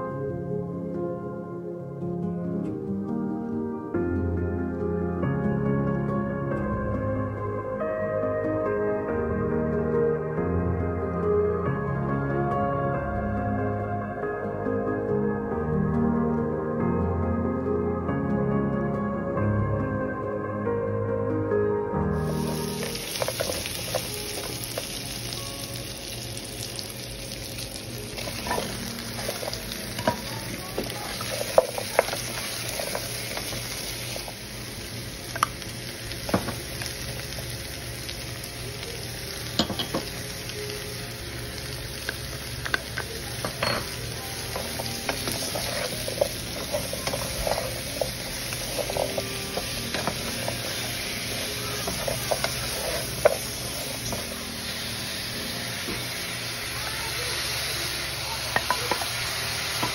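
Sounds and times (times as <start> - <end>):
food sizzling in frying pan: 22.1 - 59.9
wooden spatula scraping pan: 22.2 - 24.9, 28.2 - 34.2, 44.4 - 54.4.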